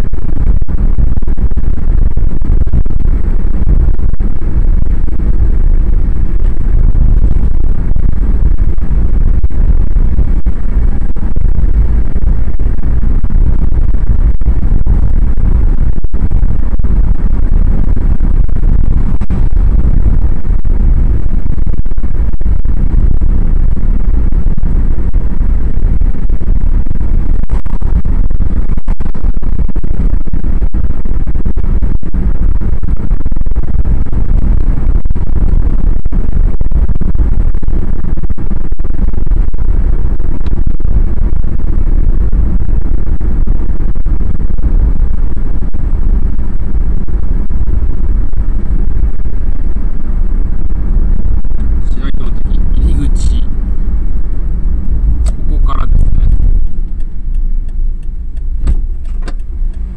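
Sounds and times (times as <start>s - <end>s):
road and wind noise from car: 0.0s - 59.9s.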